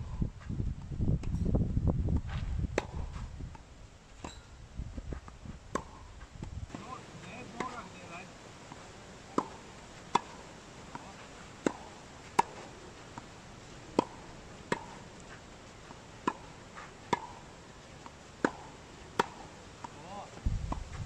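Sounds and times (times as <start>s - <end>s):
tennis ball hitting racket strings: 2.8s - 3.6s, 5.2s - 20.2s.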